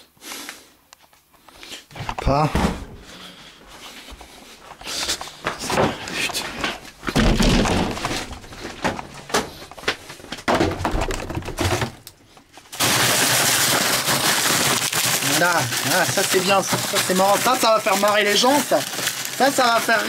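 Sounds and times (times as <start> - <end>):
knocks and handling thumps: 4.7 - 12.6.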